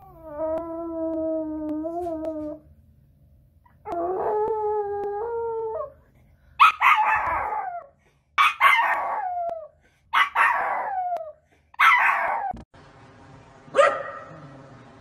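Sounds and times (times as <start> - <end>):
dog barking: 6.6 - 7.4, 8.4 - 9.1, 10.2 - 10.8, 13.7 - 14.4.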